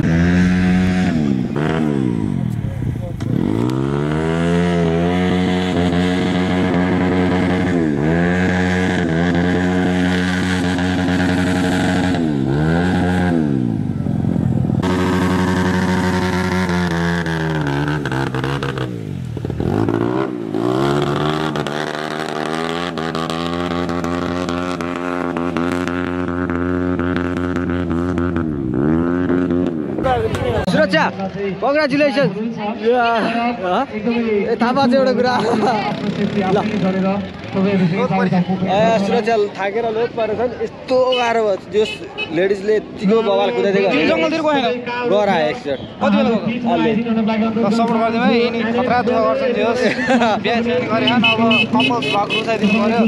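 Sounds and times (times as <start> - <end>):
dirt bike engine revving: 0.0 - 31.0, 34.8 - 39.3, 46.1 - 53.0.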